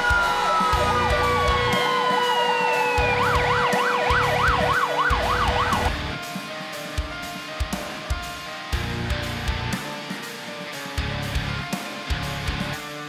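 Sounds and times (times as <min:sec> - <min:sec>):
steady siren tone: 0:00.0 - 0:06.2
wailing siren: 0:00.0 - 0:06.2
warbling siren yelp: 0:00.0 - 0:06.2.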